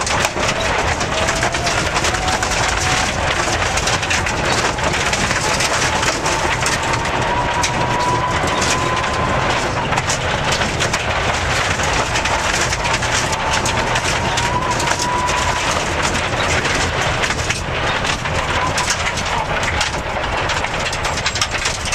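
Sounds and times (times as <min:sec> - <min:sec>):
car engine and tyres inside cabin: 0:00.0 - 0:21.9.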